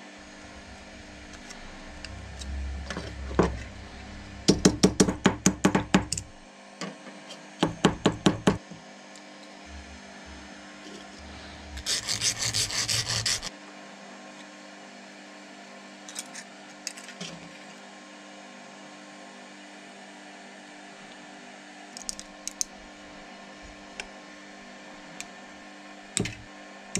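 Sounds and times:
metal file rasping: 0:11.2 - 0:13.5.

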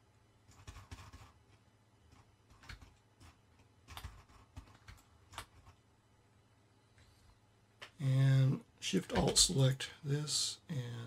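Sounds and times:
computer keyboard and mouse clicking: 0:00.5 - 0:05.8.

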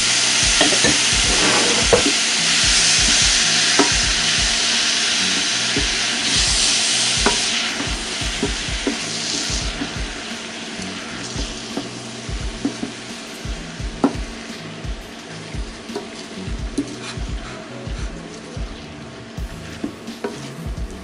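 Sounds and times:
vegetables sizzling in a saucepan: 0:00.0 - 0:17.5
wooden spoon scraping a pan: 0:00.6 - 0:02.2.

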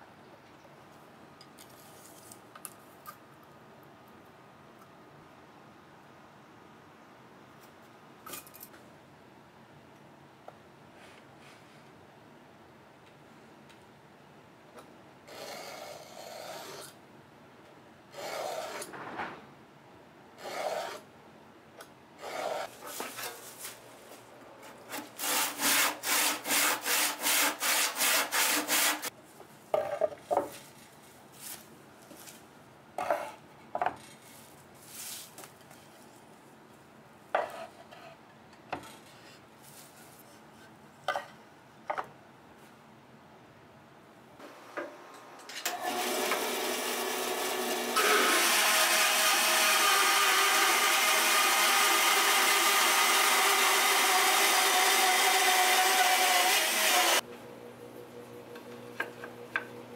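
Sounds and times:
handsaw cutting wood: 0:18.2 - 0:18.9, 0:20.4 - 0:21.0, 0:22.2 - 0:23.3, 0:24.9 - 0:29.1, 0:45.8 - 0:57.2.

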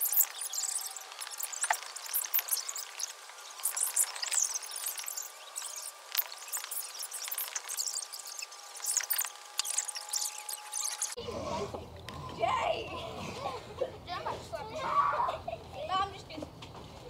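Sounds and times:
insects chirping: 0:00.0 - 0:11.2.

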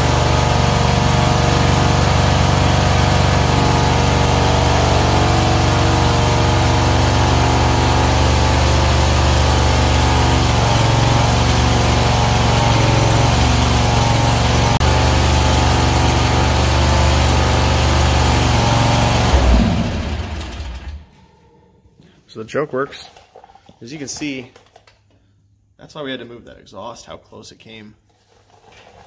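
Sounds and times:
engine running and winding down: 0:00.0 - 0:21.2.

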